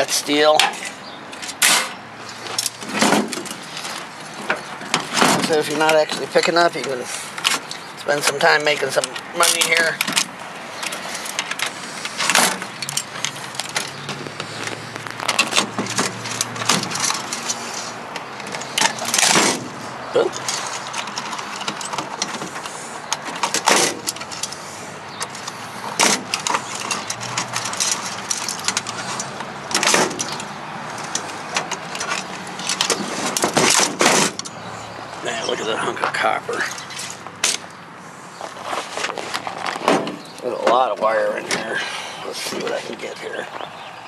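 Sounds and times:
steady background noise: 0:00.0 - 0:44.0.

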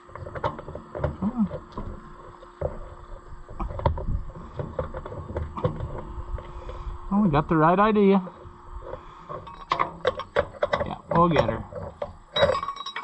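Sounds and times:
hydraulic hose metal knocks and clinks: 0:09.3 - 0:13.0.

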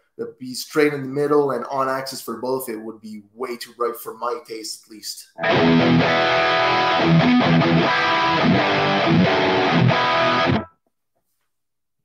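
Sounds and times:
distorted electric guitar: 0:05.4 - 0:10.8.

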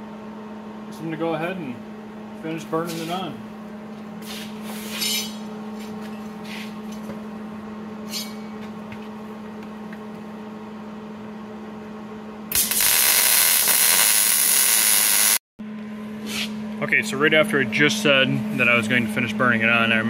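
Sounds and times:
steady low hum: 0:00.0 - 0:20.0
welding arc hiss: 0:12.5 - 0:15.4.

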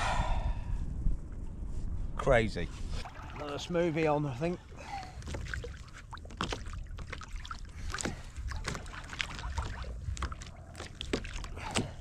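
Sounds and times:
wind rumble on microphone: 0:00.0 - 0:12.0
water slapping against kayak hull: 0:04.7 - 0:12.0.

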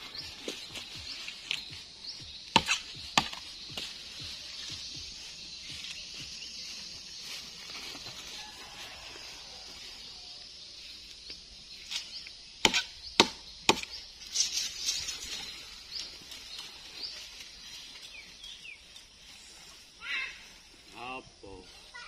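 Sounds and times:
high chirping: 0:00.0 - 0:08.0
machete chopping wood: 0:02.5 - 0:03.5, 0:12.6 - 0:14.0.

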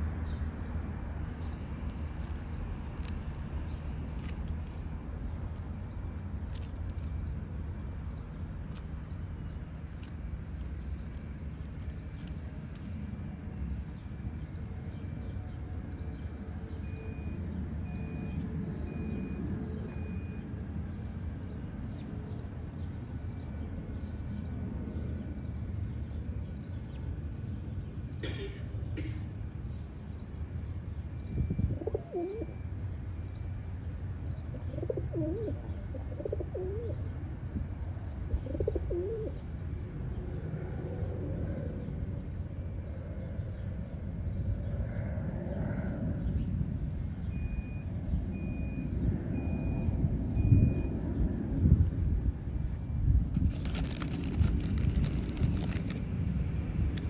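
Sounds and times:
pigeon cooing: 0:31.7 - 0:32.5, 0:34.7 - 0:37.0, 0:38.4 - 0:39.3.

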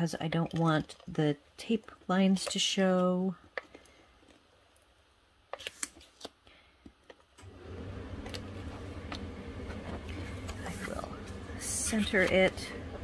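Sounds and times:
low motor hum: 0:07.4 - 0:13.0.

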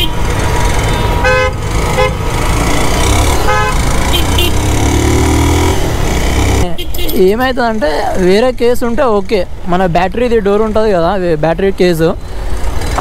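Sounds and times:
vehicle horns honking: 0:00.0 - 0:00.2, 0:00.8 - 0:02.2, 0:03.3 - 0:04.8, 0:06.6 - 0:07.4
rumble of engines: 0:00.0 - 0:13.0.

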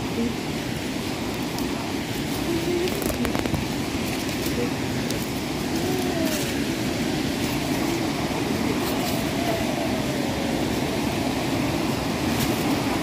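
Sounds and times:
mountain stream rushing: 0:00.0 - 0:13.0.

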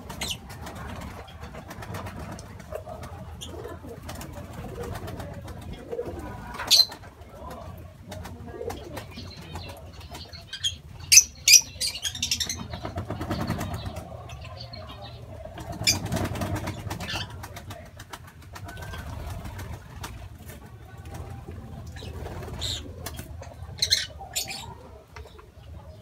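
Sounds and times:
birds chirping: 0:00.0 - 0:26.0
wing flaps: 0:12.3 - 0:14.2, 0:15.4 - 0:23.4.

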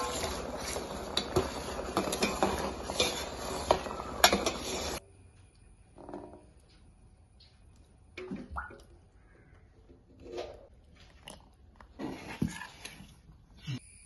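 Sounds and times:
water boiling and bubbling: 0:00.0 - 0:06.6.

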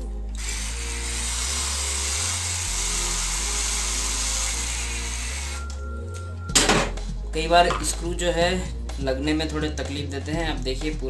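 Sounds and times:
background music: 0:00.0 - 0:11.0
electric drill driving screw: 0:00.3 - 0:05.8.

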